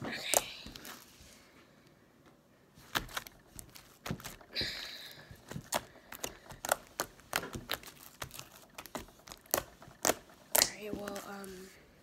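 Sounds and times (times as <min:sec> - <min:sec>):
slime clicking and popping: 0:05.4 - 0:11.2.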